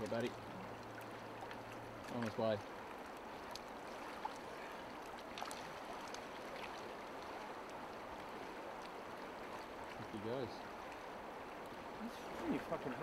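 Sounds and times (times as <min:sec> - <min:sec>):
river water running over stones: 0:00.0 - 0:13.0.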